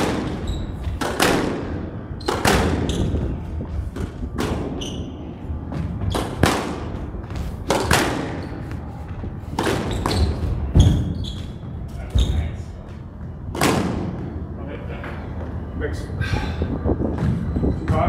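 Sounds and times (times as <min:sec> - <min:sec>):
squash ball hits: 0:00.0 - 0:03.2, 0:03.9 - 0:04.8, 0:05.7 - 0:08.6, 0:09.5 - 0:11.2, 0:13.5 - 0:14.2.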